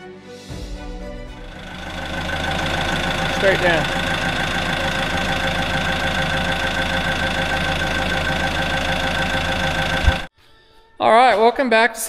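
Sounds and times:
heavy machinery engine running: 1.3 - 10.3
steady whine: 1.3 - 10.3.

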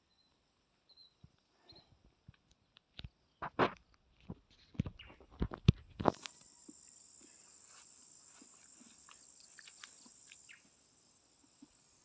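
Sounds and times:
insect buzzing: 6.1 - 12.0.

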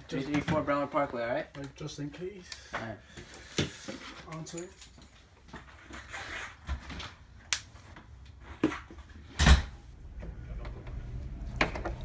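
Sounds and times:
doors opening and shutting: 8.6 - 12.0.

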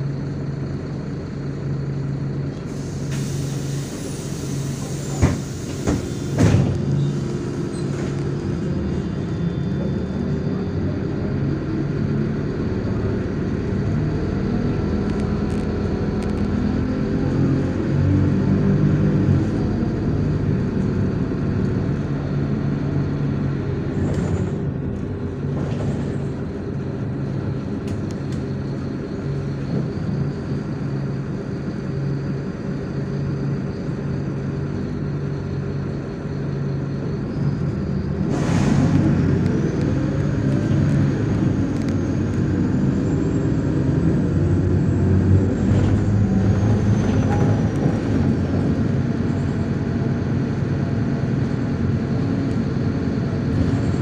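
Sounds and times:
bus diesel engine hum: 0.0 - 54.0
road noise: 0.0 - 54.0
air hiss: 2.7 - 7.6.

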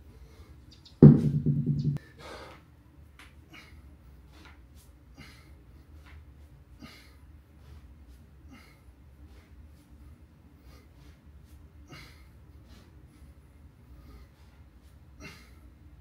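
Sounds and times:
man breathing sharply: 2.0 - 2.7.

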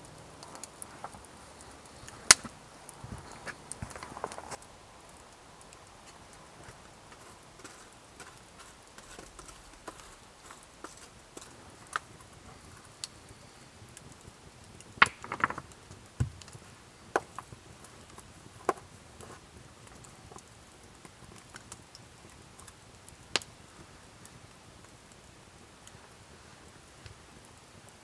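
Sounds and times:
campfire crackling and popping: 0.0 - 28.0.

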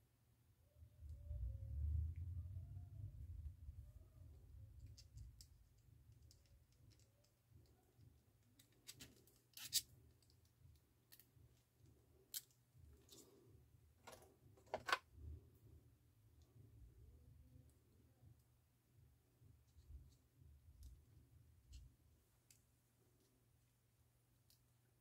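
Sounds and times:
small clicks and rattles of parts: 4.6 - 13.4, 14.0 - 15.0.

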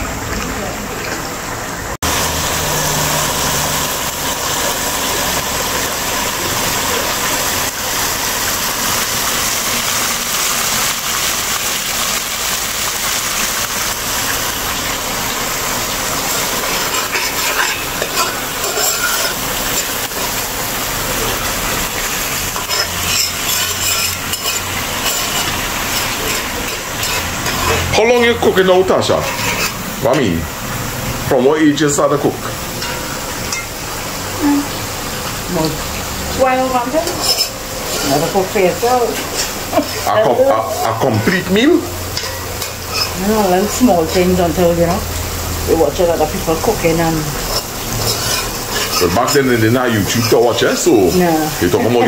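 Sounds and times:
sauce sizzling in a pot: 2.0 - 52.0
spoon scraping a pot: 16.6 - 20.3, 22.5 - 28.0, 29.0 - 30.3, 37.0 - 41.5, 42.2 - 43.8, 47.4 - 52.0.

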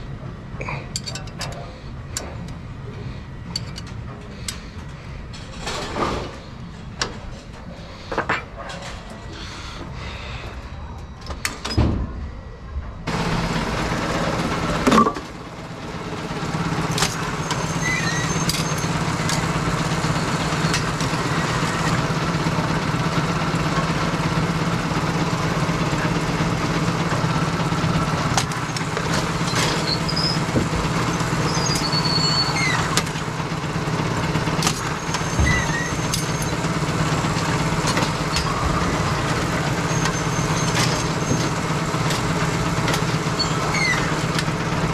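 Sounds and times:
machine motor hum: 9.2 - 44.9
high squeaks: 17.2 - 19.0, 29.4 - 30.5, 31.1 - 33.0, 34.8 - 36.6, 39.7 - 41.5, 43.2 - 44.2.

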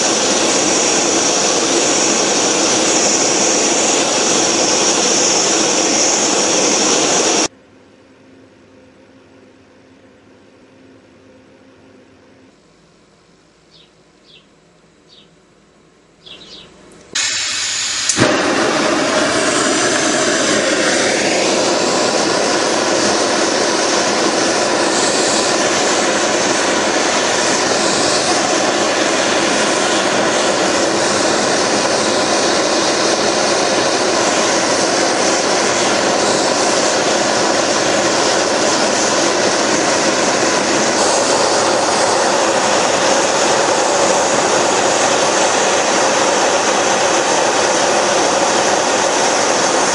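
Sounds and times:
gas hissing: 0.0 - 7.5, 16.4 - 49.9
torch flame rushing: 0.0 - 7.5, 17.1 - 49.9
torch lighting pop: 17.1 - 20.6.

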